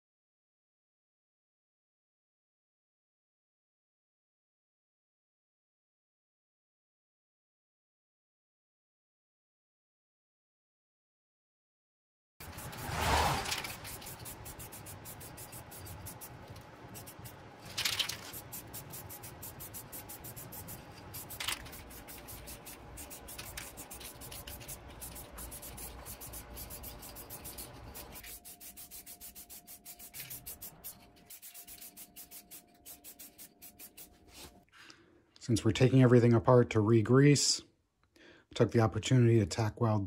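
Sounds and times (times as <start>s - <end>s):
aerosol spray can hissing: 12.4s - 34.5s.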